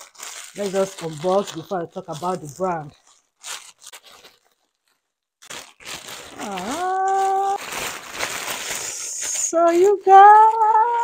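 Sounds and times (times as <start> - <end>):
plastic mailer bag crinkling: 0.0 - 11.0
woman's drawn-out ooh: 6.4 - 7.6.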